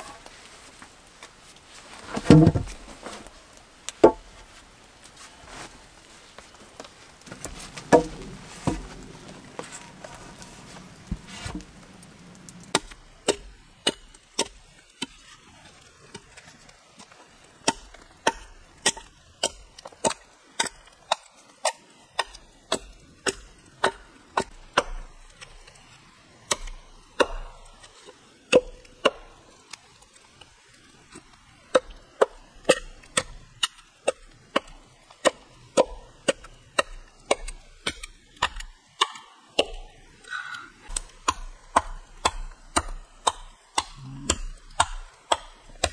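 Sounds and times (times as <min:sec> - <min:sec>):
blade chopping wooden log: 0:07.3 - 0:09.0, 0:40.9 - 0:45.9.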